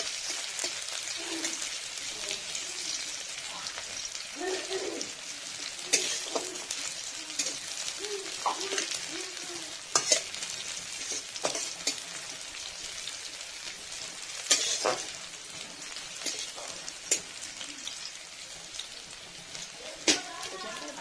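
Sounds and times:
onions sizzling in oil: 0.0 - 21.0
metal spatula scraping wok: 5.9 - 6.8, 7.4 - 9.1, 9.9 - 12.4, 14.0 - 17.4.

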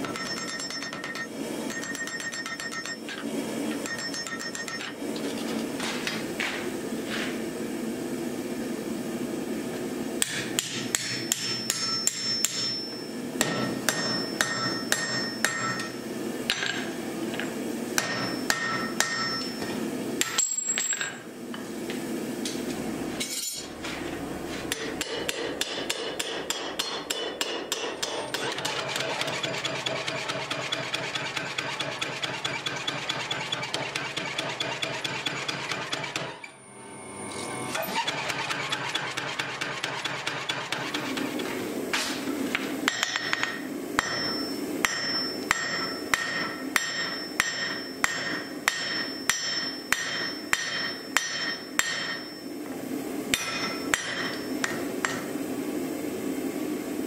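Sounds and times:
hammer striking hot steel on anvil: 0.0 - 5.0, 10.2 - 16.9, 17.9 - 21.2, 24.7 - 36.4, 41.9 - 52.5, 53.3 - 55.3.

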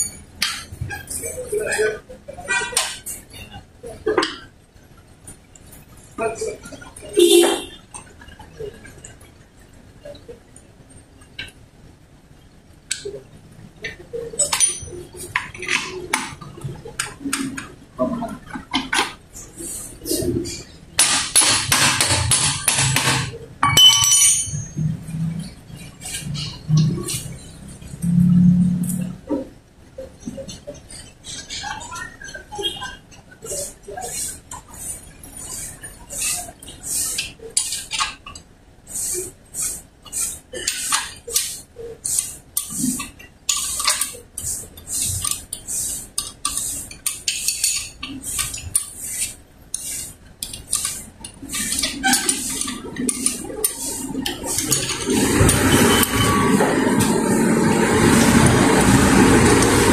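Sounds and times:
metal tools clinking and knocking: 14.4 - 16.0, 23.6 - 25.0
hand tool striking metal: 21.0 - 24.8
short metallic ring: 23.6 - 24.8
sharp metal clinks: 23.6 - 24.9.

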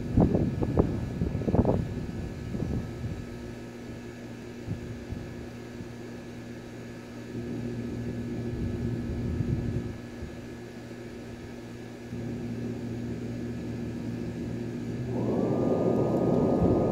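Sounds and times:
machine humming: 12.1 - 16.9.

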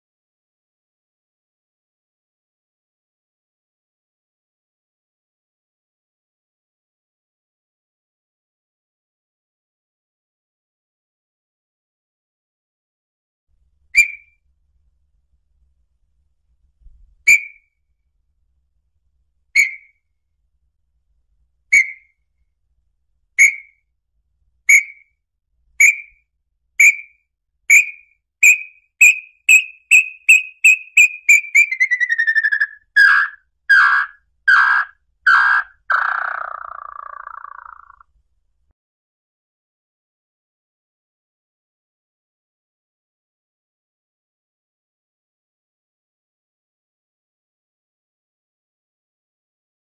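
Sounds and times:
bird whistled song: 14.0 - 14.4, 17.3 - 17.7, 19.6 - 20.0, 21.7 - 22.2, 23.4 - 23.8, 24.7 - 25.2, 25.8 - 26.2, 26.8 - 38.0
harsh low bird notes: 27.7 - 38.0.

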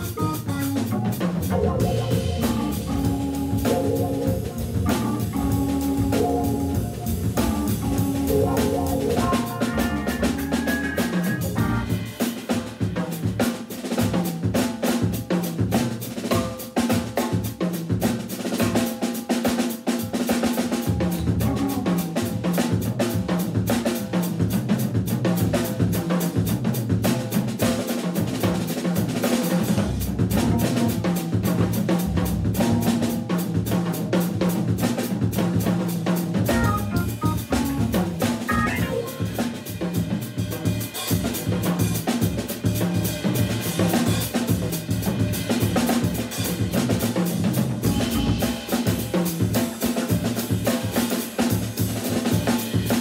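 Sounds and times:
electric guitar: 0.0 - 12.2, 36.5 - 39.8
organ bass and chords: 0.0 - 12.2, 20.9 - 22.4, 29.7 - 31.3, 31.9 - 34.1, 36.4 - 39.8, 47.8 - 48.8
drum kit: 0.0 - 53.0.

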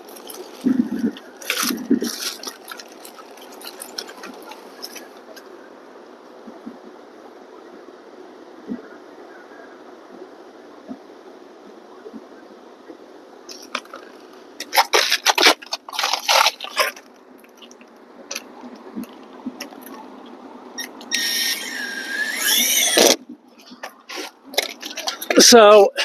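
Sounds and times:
scraping and rustling: 0.0 - 5.5, 13.5 - 25.5
cordless drill motor whining: 21.1 - 23.2.

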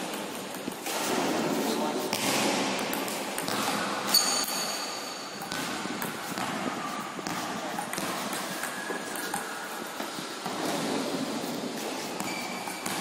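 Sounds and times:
short high ring: 4.1 - 5.3.

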